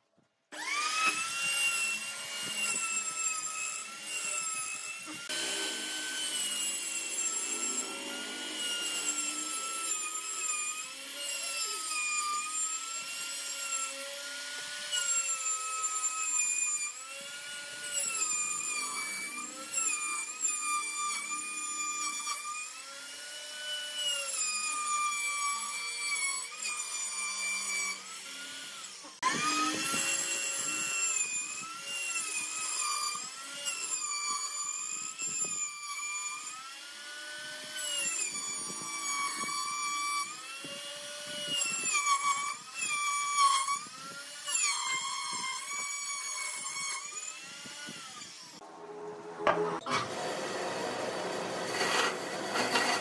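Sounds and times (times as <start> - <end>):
router motor whining: 0.5 - 53.0.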